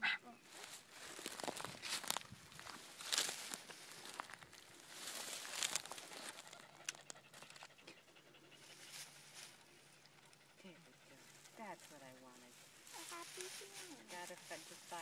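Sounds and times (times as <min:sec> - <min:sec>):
dog panting: 0:05.7 - 0:12.5.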